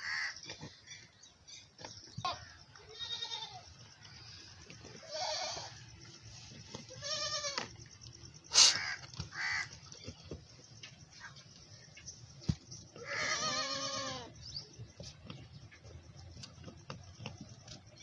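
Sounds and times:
goats bleating: 2.4s - 3.7s, 5.0s - 5.8s, 6.8s - 7.7s, 13.0s - 14.4s.

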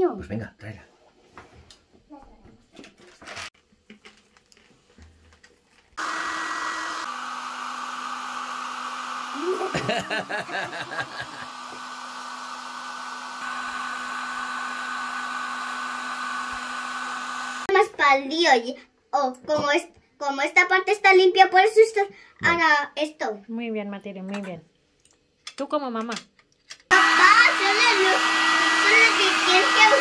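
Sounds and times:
hair dryer blowing: 6.0s - 17.7s, 26.9s - 30.0s
child laughing: 9.3s - 11.7s.

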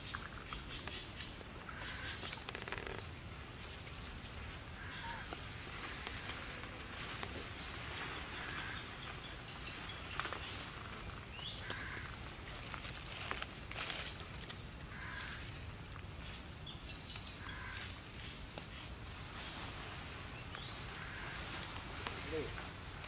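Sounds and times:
small birds chirping: 0.0s - 23.0s.

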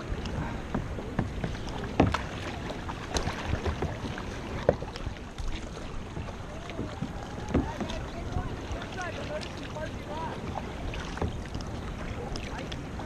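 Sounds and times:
kayak paddle strokes: 0.0s - 13.0s
water splashing and lapping: 0.0s - 13.0s.

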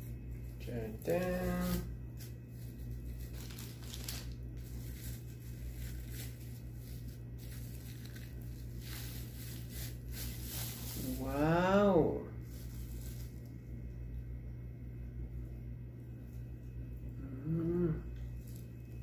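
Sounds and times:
steady low hum: 0.0s - 19.0s
plastic bag crinkling and tearing: 1.0s - 11.4s, 12.4s - 13.5s.

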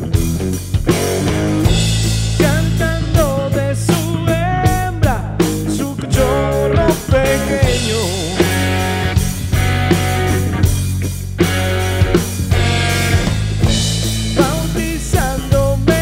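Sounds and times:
drum and cymbal hits: 0.0s - 16.0s
electric bass line: 0.0s - 16.0s
electric guitar sliding notes: 0.8s - 16.0s.

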